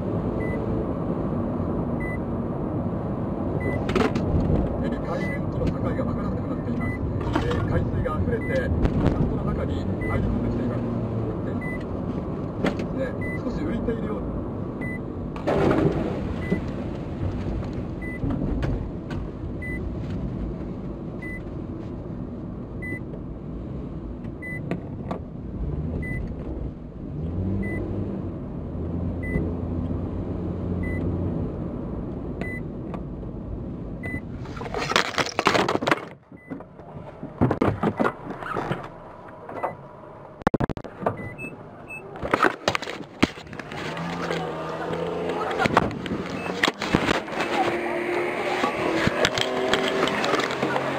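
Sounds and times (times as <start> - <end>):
camera handling rustling and bumps: 34.6 - 36.2, 42.2 - 44.4, 45.6 - 47.5.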